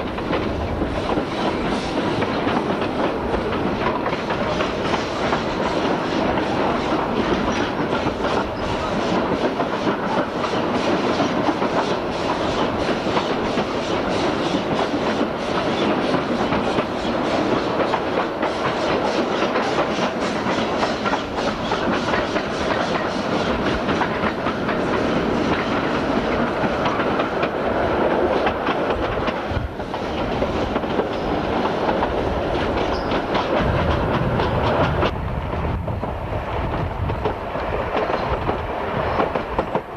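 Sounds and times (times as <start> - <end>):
train wheels clattering: 0.0 - 39.9.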